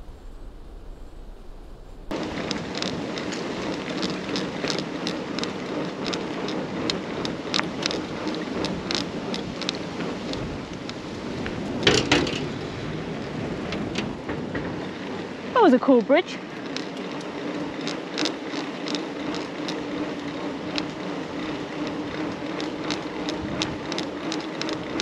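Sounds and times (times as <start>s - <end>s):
bike tyre noise: 0.0s - 25.0s
bike rattling clicks: 2.1s - 15.4s, 16.4s - 25.0s
bike knocks: 11.5s - 12.7s, 13.6s - 15.1s.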